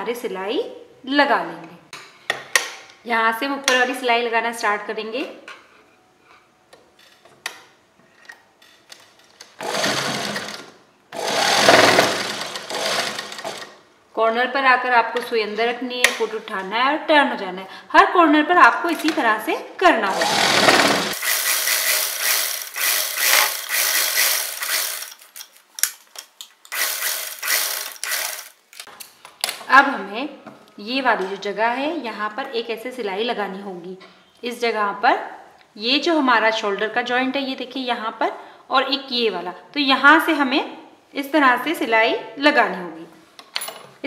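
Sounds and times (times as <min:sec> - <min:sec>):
sewing machine stitching: 0:09.6 - 0:13.8, 0:20.1 - 0:25.3, 0:26.7 - 0:28.6.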